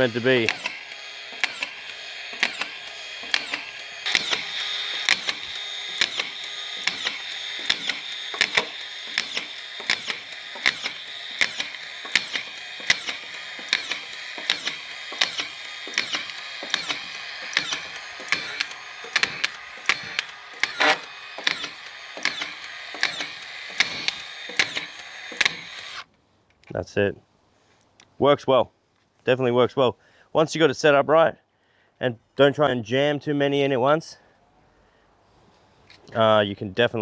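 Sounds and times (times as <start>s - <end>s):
screw gun motor whine: 0.0s - 26.1s
screw seating clicks: 0.4s - 26.0s.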